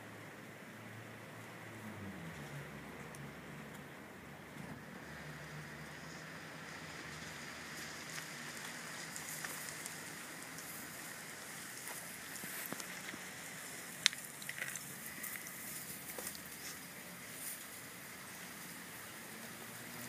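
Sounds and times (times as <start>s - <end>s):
puppies rustling in grass: 5.1s - 20.0s.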